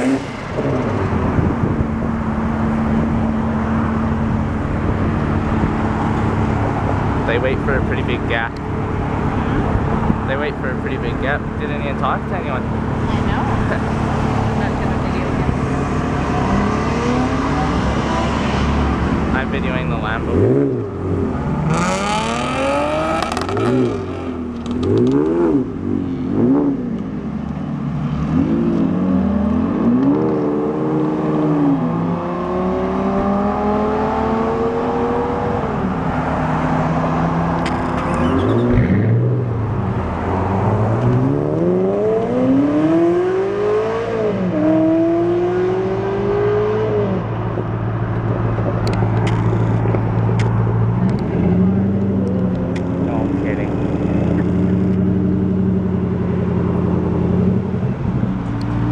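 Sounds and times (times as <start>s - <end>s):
sports car engines revving: 0.0s - 58.9s
cars accelerating through gears: 5.8s - 27.0s, 28.1s - 47.4s.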